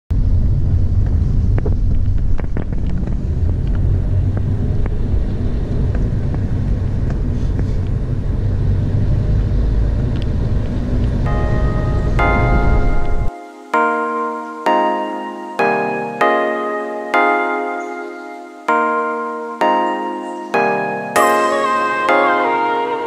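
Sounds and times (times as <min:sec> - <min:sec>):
wind noise: 0:00.1 - 0:13.4
road noise: 0:00.1 - 0:23.0.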